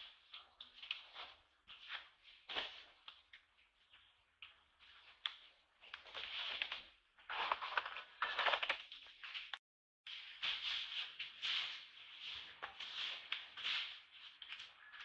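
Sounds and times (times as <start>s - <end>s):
rustling and crackling: 0.0s - 15.0s.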